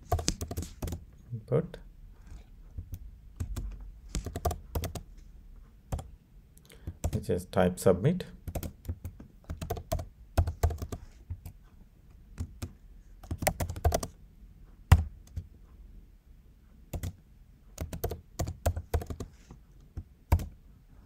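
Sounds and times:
computer keyboard typing: 0:00.0 - 0:01.0, 0:02.3 - 0:05.1, 0:05.9 - 0:06.1, 0:06.8 - 0:07.2, 0:08.4 - 0:11.6, 0:12.4 - 0:14.2, 0:14.9 - 0:15.5, 0:16.9 - 0:17.2, 0:17.8 - 0:19.3, 0:19.9 - 0:20.6.

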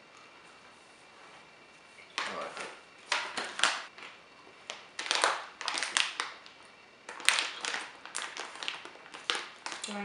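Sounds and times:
plastic bag crinkling: 0:04.7 - 0:09.9.

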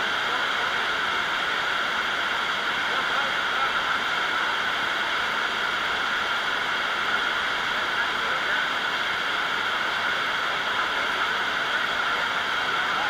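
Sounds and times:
murmur of many voices: 0:00.0 - 0:13.0.

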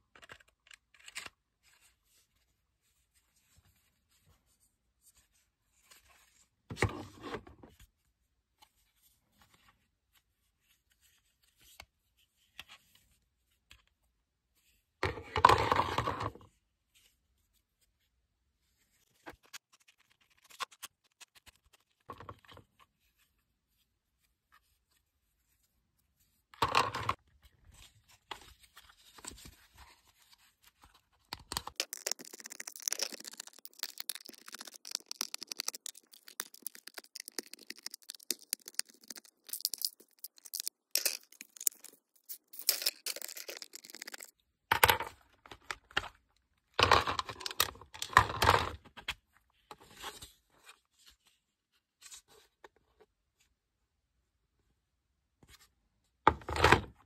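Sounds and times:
scratchy plastic clicking: 0:31.4 - 0:44.3
plastic toy parts clattering: 0:31.4 - 0:45.0.

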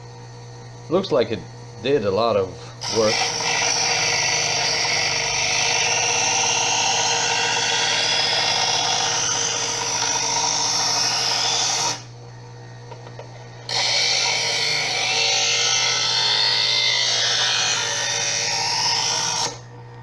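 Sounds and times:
sharpener motor hum: 0:00.0 - 0:20.0
knife blade grinding rasp: 0:02.6 - 0:12.1, 0:13.7 - 0:19.6.

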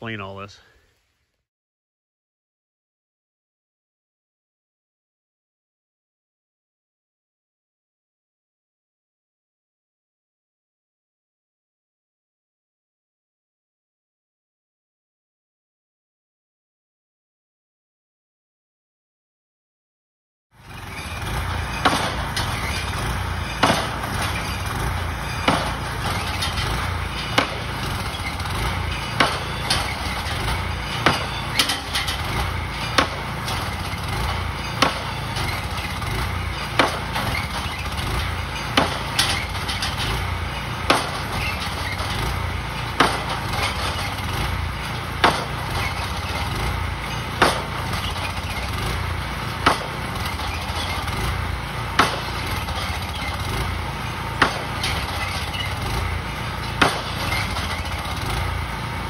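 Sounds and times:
engine running: 0:20.6 - 0:59.0
pile driver hammer knocks: 0:21.6 - 0:35.8, 0:36.6 - 0:38.0, 0:38.6 - 0:39.9, 0:40.9 - 0:42.1, 0:42.9 - 0:44.2, 0:45.2 - 0:46.5, 0:47.4 - 0:48.3, 0:49.6 - 0:51.0, 0:52.0 - 0:53.4, 0:54.4 - 0:55.2, 0:56.6 - 0:58.0.

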